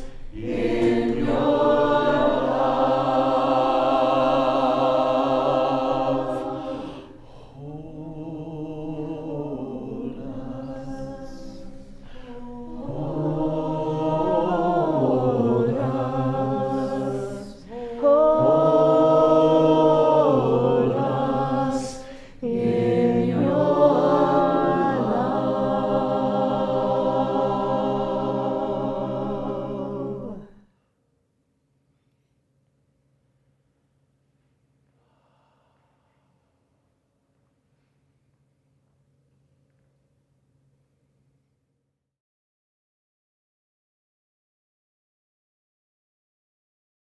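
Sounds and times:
group singing chant a cappella: 0.0 - 30.7.

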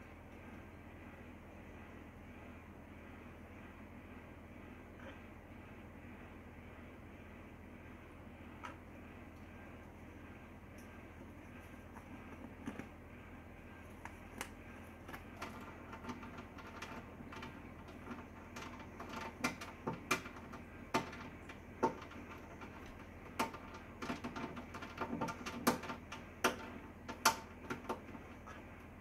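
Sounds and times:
bird beak tapping inside microwave: 15.1 - 28.6.

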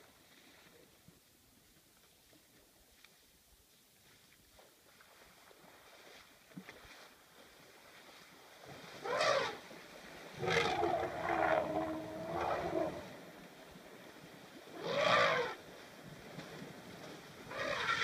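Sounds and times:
elephants trumpeting: 9.0 - 9.6, 10.4 - 13.1, 14.8 - 15.6, 17.5 - 18.0.

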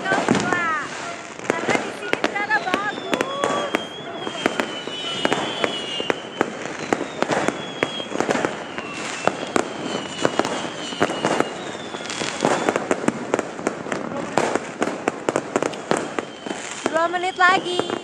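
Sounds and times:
fireworks bangs and crackles: 0.0 - 18.0
high wavering whistle: 2.4 - 12.8, 16.0 - 18.0.

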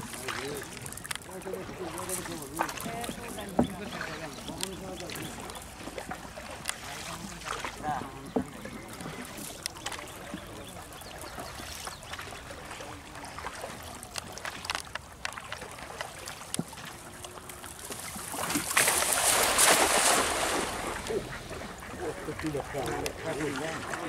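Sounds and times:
cast net splashing on water: 8.8 - 21.2.

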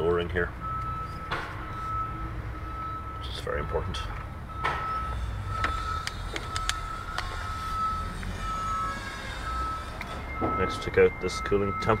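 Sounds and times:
steady high tone: 5.0 - 12.0.

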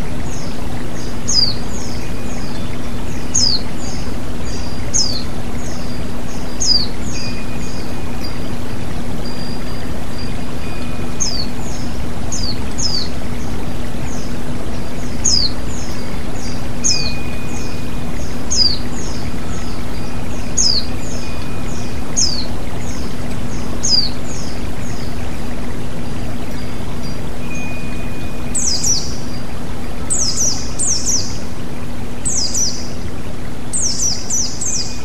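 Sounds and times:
stream rushing over rocks: 0.0 - 35.0
bird whistling: 0.4 - 13.5, 14.1 - 31.4.

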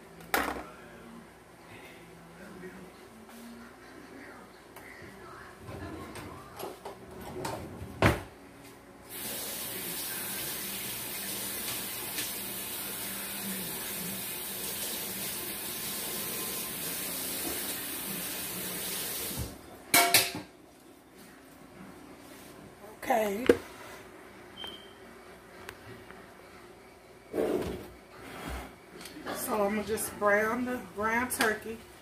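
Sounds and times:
kitchen tap running: 9.1 - 19.6.

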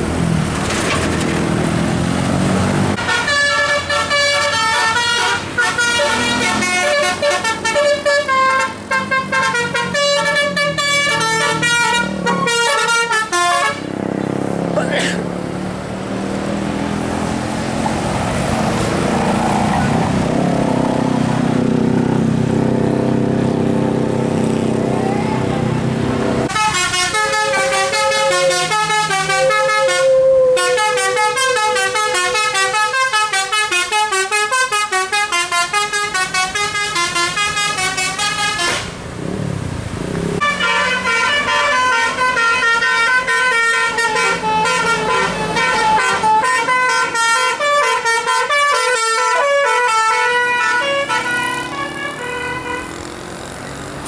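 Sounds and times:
bus engine running: 0.0 - 54.0
musical air horns playing tunes: 3.0 - 14.0, 26.4 - 38.9, 40.4 - 53.0.

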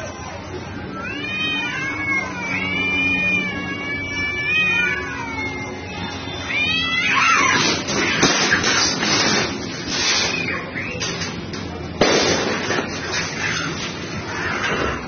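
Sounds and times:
cats yowling: 0.0 - 8.7
cats screeching and scuffling: 0.9 - 11.6, 12.7 - 15.0
clatters on metal roof: 7.4 - 10.3.

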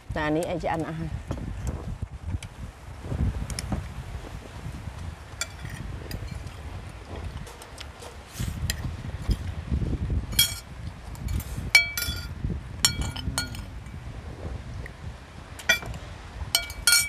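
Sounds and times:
cutlery clinking on ceramic plates: 10.4 - 10.6, 11.3 - 12.3, 12.9 - 13.7, 16.6 - 17.0
low rumble: 12.2 - 15.3.

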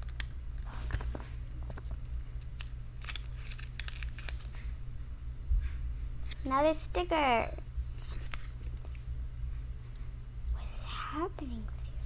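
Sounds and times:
low hum: 0.0 - 12.0
plastic packaging crinkling: 0.7 - 4.7.

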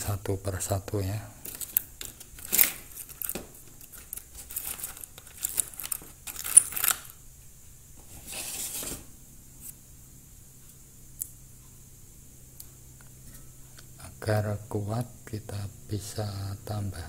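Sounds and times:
paper rustling: 1.4 - 7.1, 8.0 - 9.1
metal pieces clinking in plastic tray: 1.5 - 7.2.

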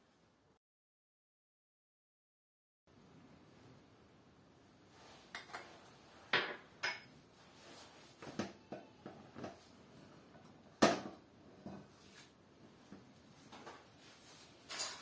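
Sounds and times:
glass bowl clinking: 6.3 - 7.1.

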